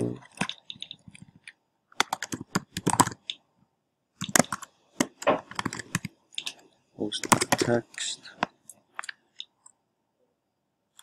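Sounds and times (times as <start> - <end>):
computer keyboard typing: 0.0 - 3.4, 4.2 - 6.6, 7.2 - 8.1.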